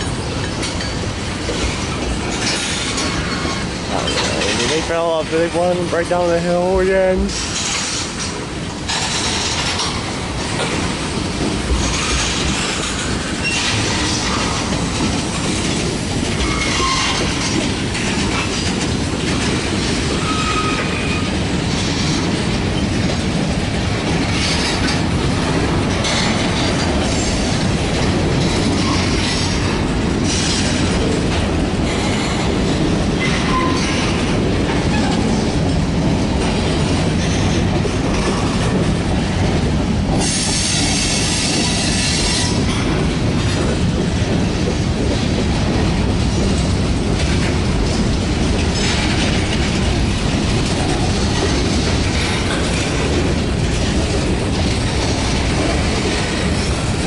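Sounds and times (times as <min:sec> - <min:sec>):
steel wheels rumbling on rail: 0:00.0 - 0:57.0
wheels clacking over rail joints: 0:00.0 - 0:57.0
high wheel squeals: 0:20.2 - 0:21.3.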